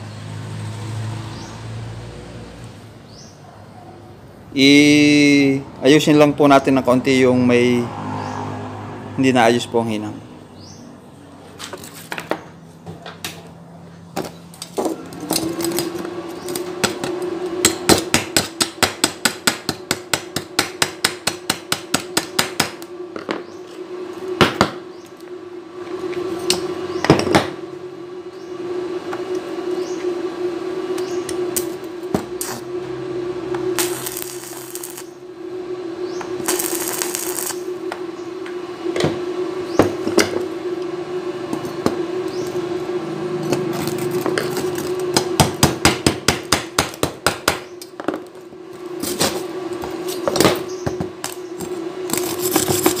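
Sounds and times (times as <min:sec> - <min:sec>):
welder humming: 0:04.4 - 0:53.0
welding arc hiss: 0:14.2 - 0:25.3, 0:31.0 - 0:40.8, 0:41.5 - 0:53.0.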